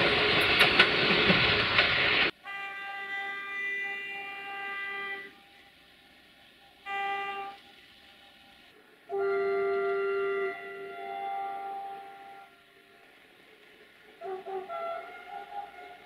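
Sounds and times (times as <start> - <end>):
locomotive horn blasts: 2.4 - 5.7, 6.8 - 7.7, 9.1 - 13.1, 14.2 - 16.0.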